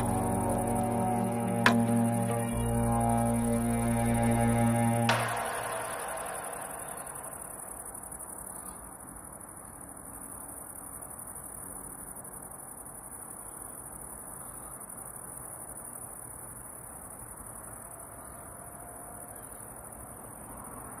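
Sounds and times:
faint low outdoor rumble: 0.0s - 7.4s.

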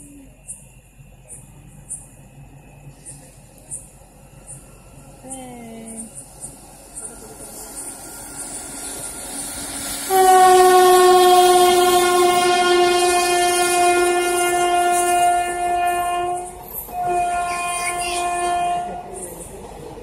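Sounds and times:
train wheels clattering over rails: 6.0s - 20.0s
train horn blasts: 10.0s - 19.1s.

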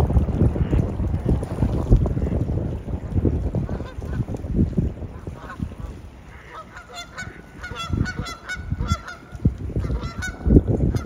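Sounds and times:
wind buffeting microphone: 0.0s - 11.0s
geese honking: 5.2s - 11.0s.

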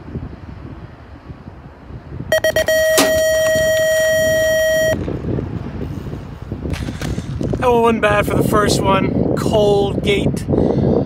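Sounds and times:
long steady tone: 2.3s - 5.0s
quick beeps: 2.3s - 5.0s
gate dropping metallic bang: 2.7s - 3.6s.

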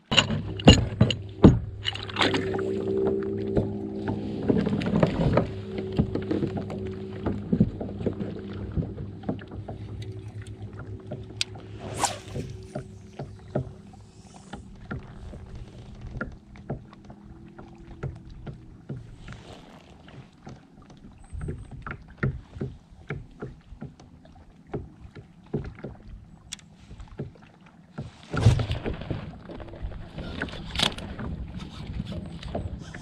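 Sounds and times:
fishing tackle clicks and knocks: 0.0s - 2.6s.

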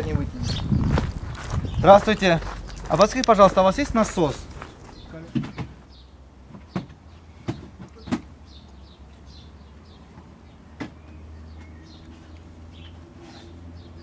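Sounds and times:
knocks and clunks in car boot: 5.2s - 5.8s.

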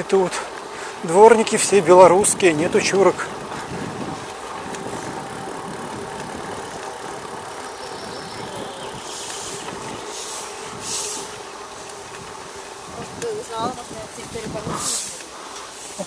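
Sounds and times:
bicycle rolling and wind noise: 0.0s - 16.0s
broom brushing swishes: 9.0s - 12.9s.

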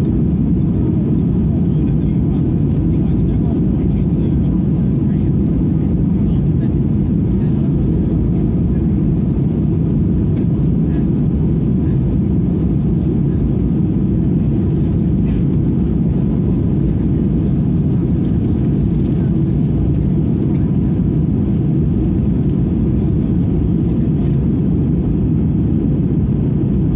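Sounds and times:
airliner cabin engine rumble: 0.0s - 26.9s.

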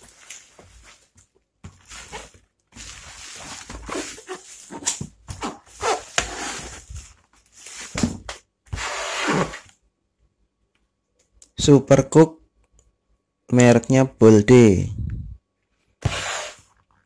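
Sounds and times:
bubble wrap crinkling: 0.0s - 8.0s.

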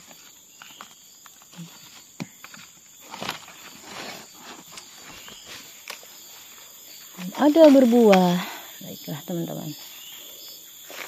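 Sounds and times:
dry leaves rustling and crackling: 0.0s - 8.4s.

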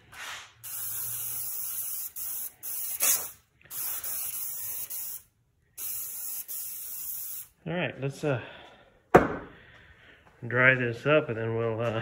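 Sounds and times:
spray paint can hissing: 0.2s - 7.5s.

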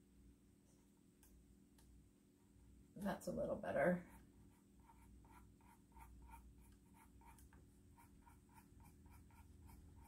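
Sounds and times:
pencil scratching on paper: 4.0s - 10.0s.

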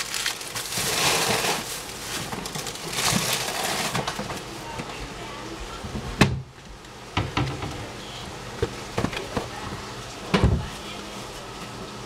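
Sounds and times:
cookware knocks and clatters: 7.2s - 7.8s.

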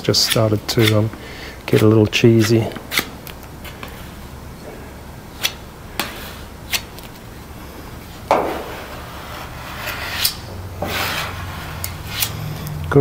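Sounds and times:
spreader scraping filler on metal: 0.1s - 1.1s, 8.5s - 12.6s.

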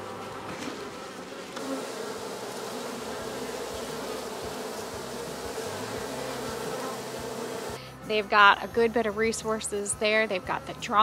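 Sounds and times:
honeybees buzzing: 0.0s - 8.2s.

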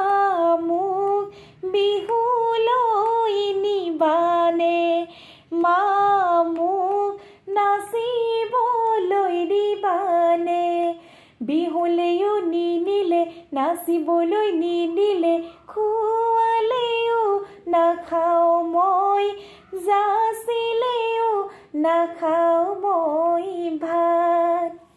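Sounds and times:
woman singing unaccompanied: 0.0s - 24.9s.

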